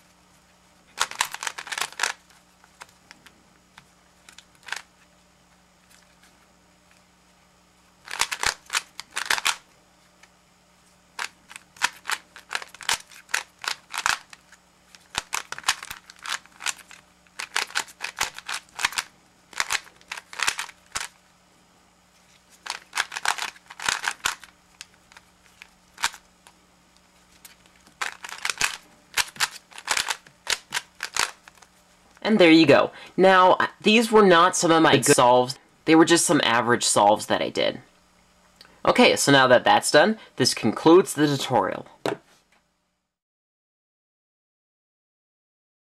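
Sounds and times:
puzzle cube plastic clicking: 0.9s - 4.9s, 8.0s - 9.6s, 11.2s - 21.2s, 22.6s - 26.6s, 27.4s - 31.7s.

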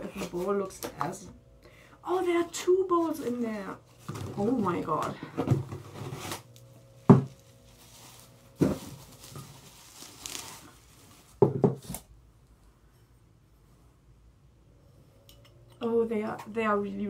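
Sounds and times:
paper and cardboard rustling: 5.6s - 6.5s, 7.1s - 12.1s.

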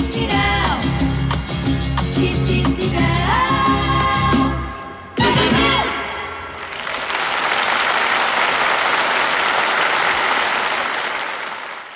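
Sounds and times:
audience applauding: 6.5s - 11.9s.

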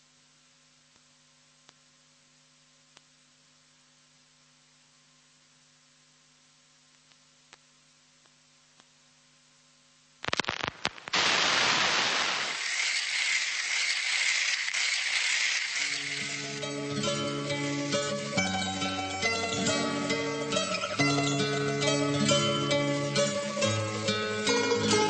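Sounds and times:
faint steady hum: 0.0s - 25.0s
sharp crackles: 10.2s - 19.2s
loud steady hiss: 10.2s - 25.0s.

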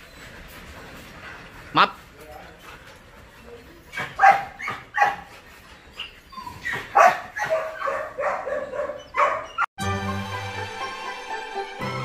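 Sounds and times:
dog barking and yipping: 3.9s - 9.7s
music: 9.8s - 12.0s.

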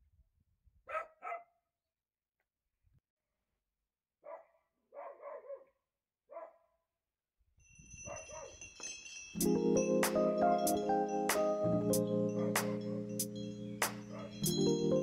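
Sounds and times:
dog barking faintly: 0.9s - 1.6s, 4.3s - 6.6s.

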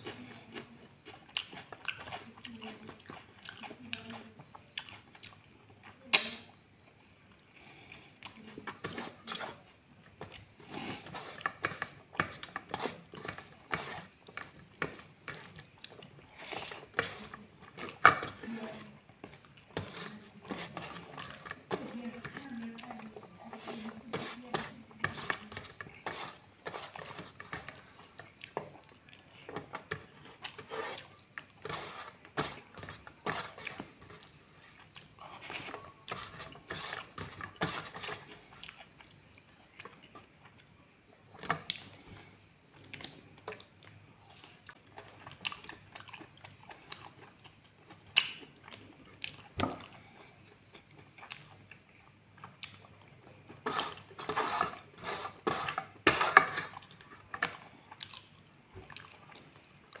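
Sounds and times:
man chewing: 0.0s - 3.6s, 4.5s - 6.2s, 9.3s - 18.0s, 25.8s - 54.4s, 56.7s - 60.0s.

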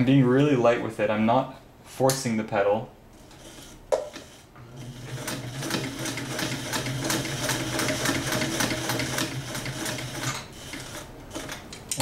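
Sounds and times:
sewing machine motor hum: 3.2s - 11.7s.

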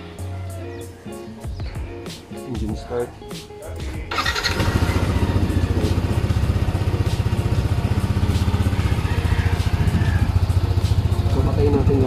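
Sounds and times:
scooter engine idling: 4.1s - 12.0s.

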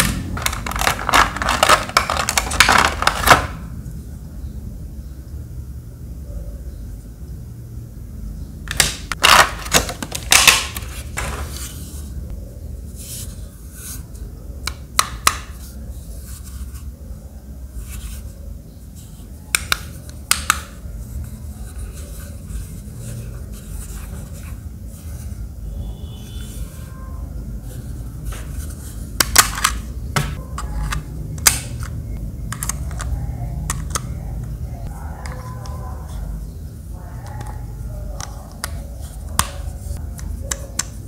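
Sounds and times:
small objects clicking and scraping: 0.0s - 3.3s.

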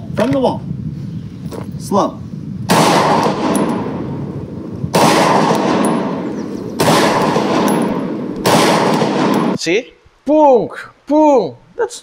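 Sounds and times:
pistol shots with echo: 2.7s - 9.6s.

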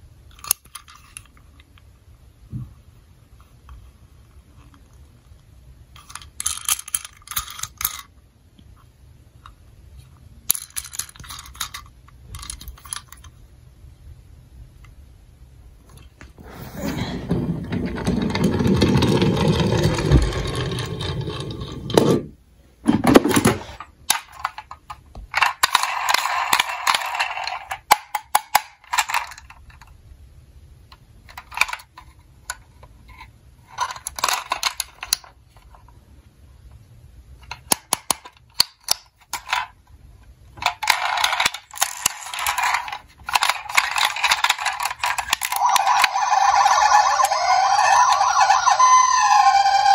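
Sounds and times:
plastic toy clicking and rattling: 0.3s - 1.7s, 6.0s - 8.1s, 10.4s - 13.3s, 17.7s - 22.1s, 23.2s - 29.9s, 31.2s - 35.8s, 37.4s - 39.8s, 40.5s - 49.9s
toy car rolling on table: 16.4s - 29.9s, 33.1s - 35.4s, 40.6s - 49.9s.

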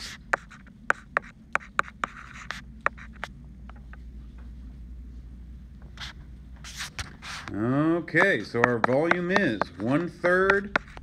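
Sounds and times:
stylus scratching on a screen: 0.0s - 3.3s, 8.2s - 11.0s
steady low hum: 0.0s - 11.0s
stylus tapping on a screen: 8.2s - 11.0s.

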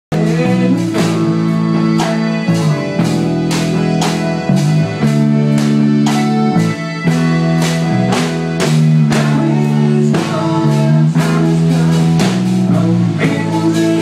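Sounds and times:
recorded music with guitar chords: 0.1s - 14.0s
toy drum kit and cymbal hits: 0.2s - 14.0s.

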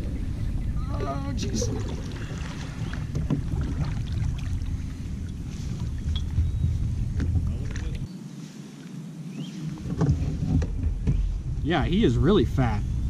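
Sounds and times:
low rumble: 0.0s - 8.1s, 9.4s - 13.0s
paddle splashing in water: 1.4s - 6.4s.

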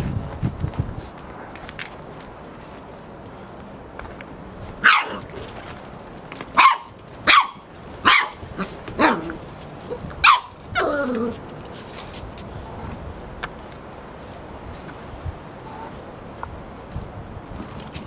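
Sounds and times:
puppy barking: 4.8s - 5.3s, 6.6s - 9.4s, 10.2s - 11.2s.

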